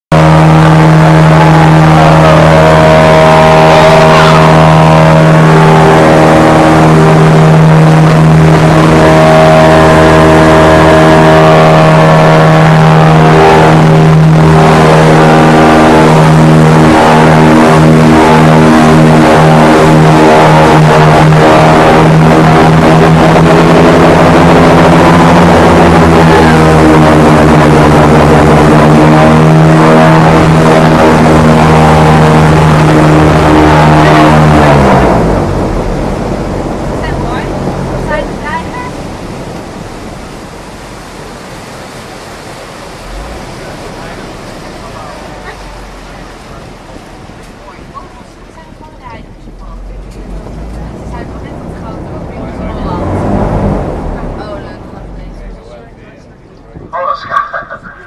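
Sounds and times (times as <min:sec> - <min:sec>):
airboat engine and propeller: 0:00.1 - 0:58.0.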